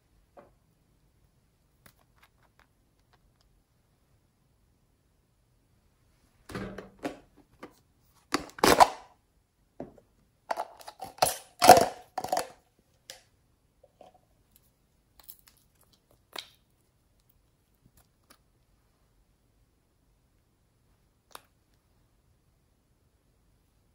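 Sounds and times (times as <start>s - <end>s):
jar clasps clicking and knocking: 10.5s - 12.6s.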